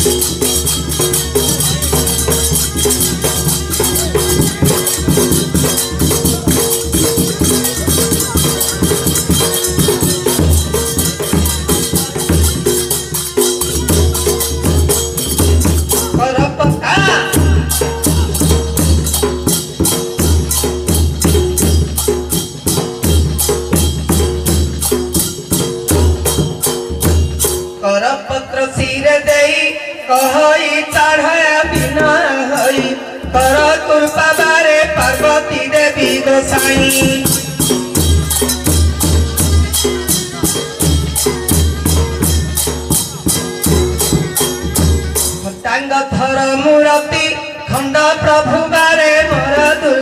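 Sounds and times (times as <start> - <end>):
small hand cymbals clashing: 0.0 - 16.2, 17.3 - 27.8, 32.6 - 45.6
barrel drum beating: 0.0 - 27.8, 34.9 - 45.6
man singing: 15.9 - 18.9, 27.8 - 37.8, 45.4 - 50.0.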